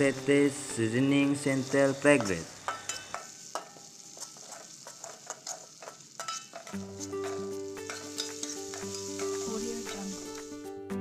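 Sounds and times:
background music with held notes: 0.0 - 2.4, 6.7 - 11.0
paste sizzling in hot oil: 0.0 - 10.9
spatula scraping a wok: 1.6 - 10.5.

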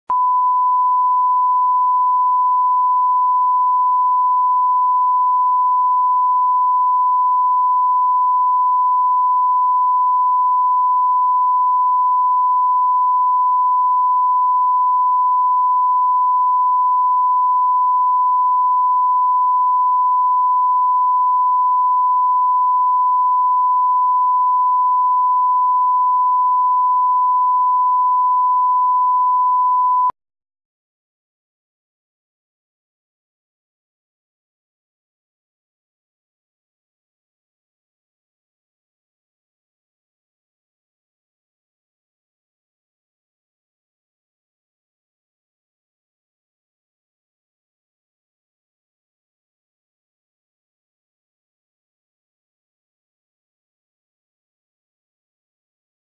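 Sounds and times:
steady sine test tone: 0.1 - 30.2.

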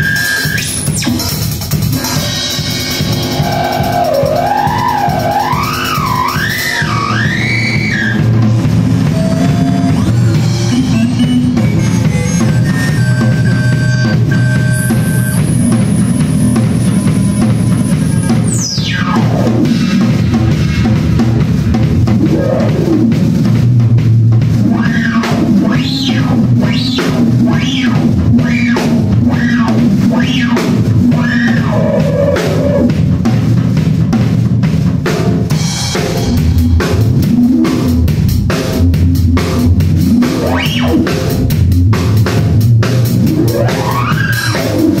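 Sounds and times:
drum kit fast beat: 0.0 - 45.0
synthesizer drone swooping in pitch: 3.0 - 23.6, 24.6 - 32.9, 39.5 - 41.6.

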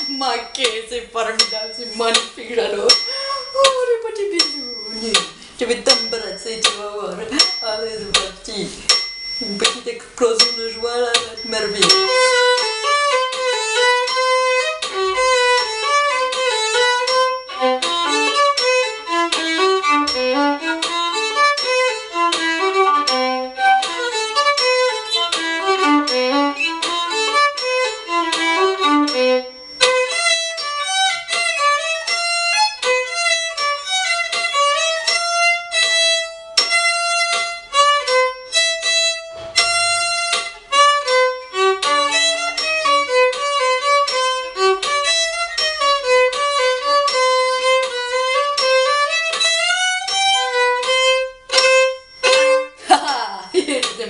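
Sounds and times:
solo violin: 11.2 - 52.8.

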